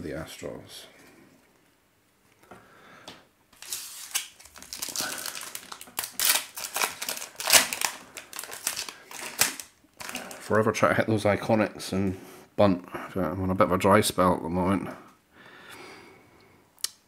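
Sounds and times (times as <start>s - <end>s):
wrapper crinkling and tearing: 3.6s - 10.6s.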